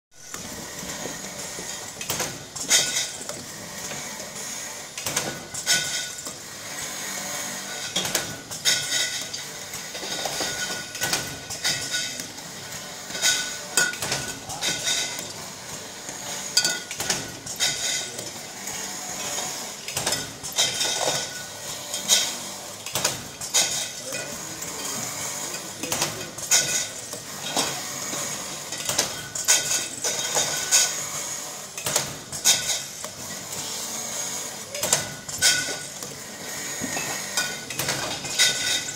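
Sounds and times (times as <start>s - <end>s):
glass bottles clinking: 16.5s - 18.4s, 34.9s - 36.0s, 36.8s - 38.9s.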